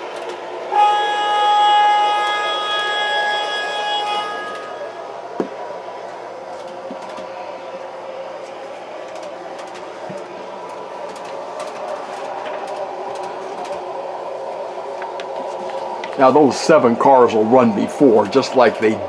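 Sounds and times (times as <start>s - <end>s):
model streetcar whirring on track: 0.0s - 19.0s
multi-tone horn: 0.7s - 5.0s.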